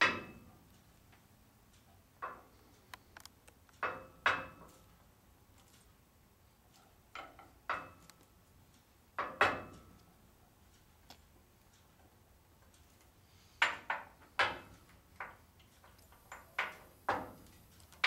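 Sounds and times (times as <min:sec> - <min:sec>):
sharp ringing metal knocks: 0:00.0 - 0:00.6, 0:03.8 - 0:04.7, 0:07.2 - 0:08.0, 0:09.2 - 0:10.0.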